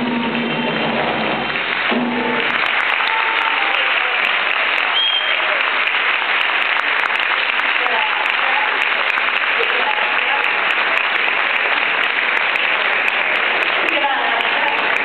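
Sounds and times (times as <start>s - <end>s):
band music: 0.0s - 3.9s
audience applause: 0.0s - 15.0s.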